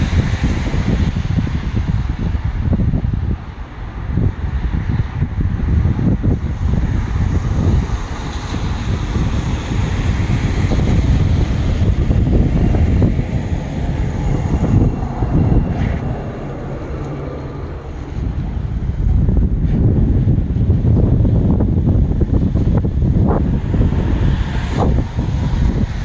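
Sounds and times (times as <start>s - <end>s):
wind buffeting microphone: 0.0s - 26.0s
pickup truck rumbling on rails: 7.0s - 25.9s.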